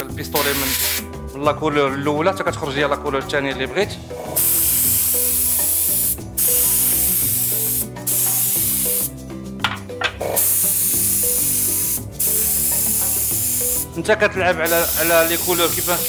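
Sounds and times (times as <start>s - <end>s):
spray gun hissing: 0.4s - 1.1s, 4.3s - 9.1s, 10.3s - 13.9s, 14.7s - 16.0s.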